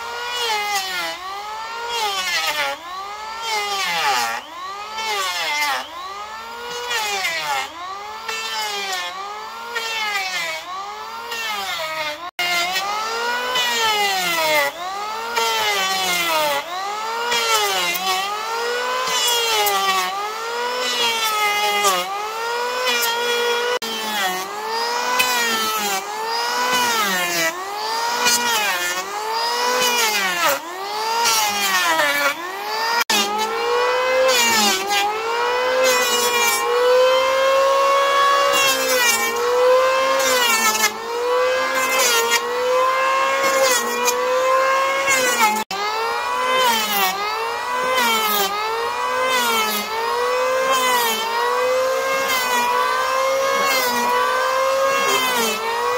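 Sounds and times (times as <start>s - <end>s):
hand saw cutting wood: 0.0s - 55.9s.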